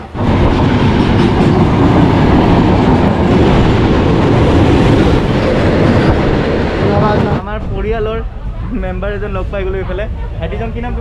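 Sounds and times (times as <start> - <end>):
trains rumbling and rattling on track: 0.0 - 11.0.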